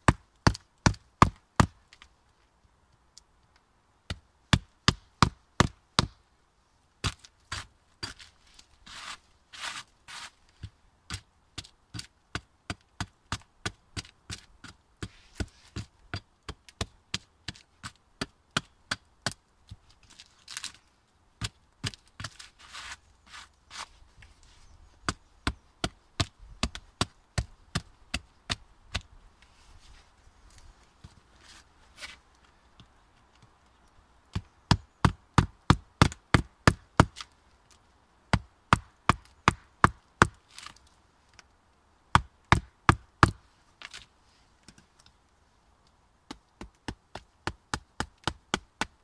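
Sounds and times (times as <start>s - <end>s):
hatchet chopping into log: 42.2s - 43.4s.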